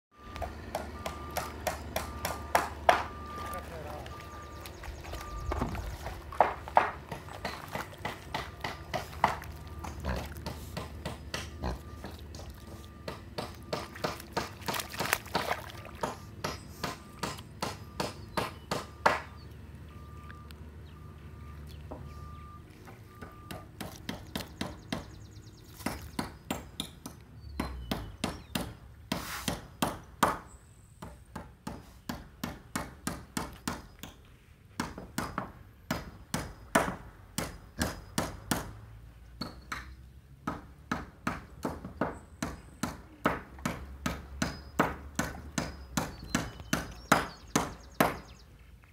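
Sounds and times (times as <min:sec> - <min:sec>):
sharp hammer-like knocks: 0:13.0 - 0:19.4.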